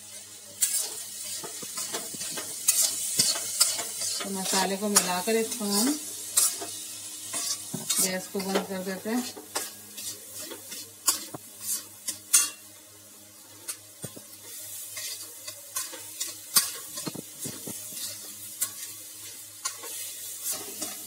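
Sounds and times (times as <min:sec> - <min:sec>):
lentils sizzling: 0:00.0 - 0:21.0
spatula scraping steel pan: 0:00.6 - 0:06.7.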